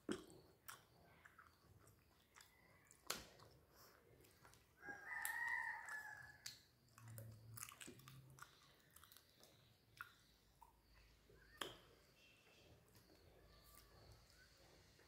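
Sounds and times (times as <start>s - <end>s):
wet eating sounds: 0.0s - 11.8s
rooster crowing: 4.8s - 6.4s.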